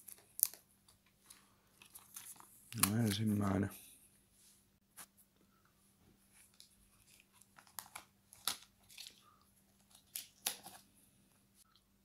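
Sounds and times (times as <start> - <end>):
plastic film peeling and crinkling: 0.0 - 0.6, 1.2 - 3.4, 6.5 - 10.9.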